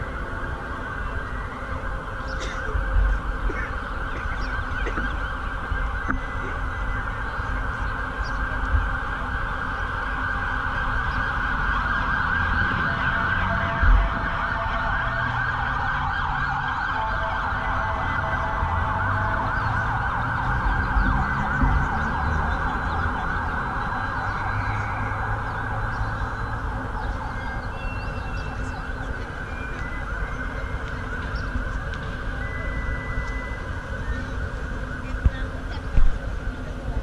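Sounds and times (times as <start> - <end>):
siren wailing: 0.0 - 37.0
traffic rumble: 0.0 - 37.0.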